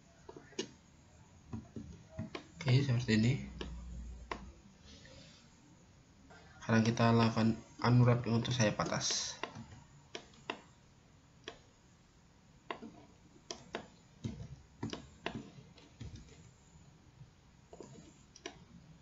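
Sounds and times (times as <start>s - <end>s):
low room hiss: 0.0s - 19.0s
computer mouse and keyboard clicks: 8.2s - 10.7s, 11.4s - 11.7s, 12.7s - 16.6s, 17.7s - 18.8s.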